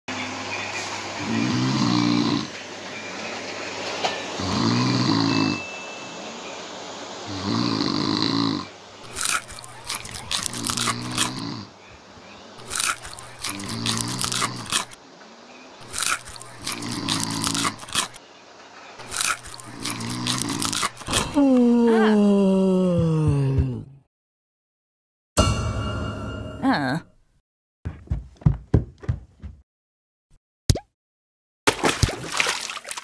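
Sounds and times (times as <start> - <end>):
person snoring: 1.2 - 2.5, 4.4 - 5.6, 7.3 - 8.7, 10.5 - 11.7, 19.5 - 24.0
crunching chips: 9.0 - 11.5, 12.6 - 15.0, 15.8 - 18.2, 19.0 - 21.4.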